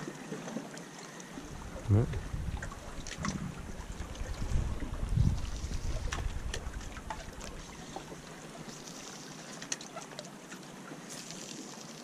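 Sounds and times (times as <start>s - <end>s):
small waves lapping on rocks: 0.0s - 12.0s
wind rumble on microphone: 1.4s - 8.2s.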